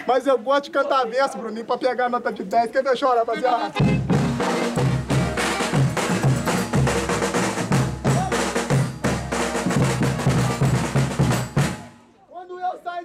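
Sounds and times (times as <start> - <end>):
band instruments playing: 3.6 - 12.1
bass drum: 3.8 - 12.0
snare drum: 3.8 - 12.0.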